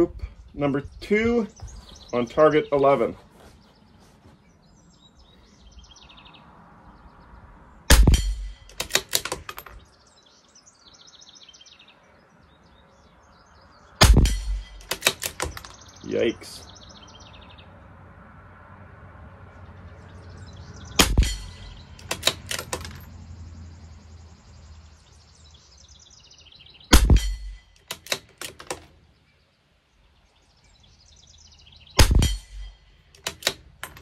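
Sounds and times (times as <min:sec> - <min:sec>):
rifle shots: 0:07.9 - 0:09.7, 0:14.0 - 0:15.7, 0:21.0 - 0:23.0, 0:26.9 - 0:28.2, 0:32.0 - 0:33.5
rifle bolt metallic clicks: 0:07.9 - 0:09.8, 0:14.0 - 0:15.8, 0:21.0 - 0:23.0, 0:26.9 - 0:28.9, 0:32.0 - 0:34.0.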